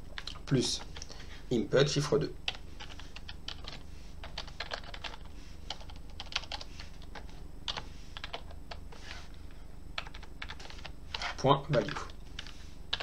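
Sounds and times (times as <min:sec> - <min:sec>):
faint low hum: 0:00.0 - 0:13.0
computer keyboard typing: 0:02.5 - 0:08.8, 0:10.0 - 0:13.0.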